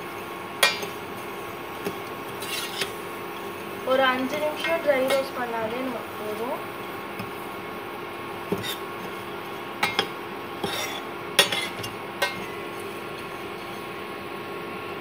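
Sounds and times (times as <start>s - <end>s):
spoon clinking against pan: 0.6s - 1.0s, 9.8s - 12.5s
spoon stirring in saucepan: 0.6s - 5.4s, 7.0s - 7.5s, 8.4s - 13.9s.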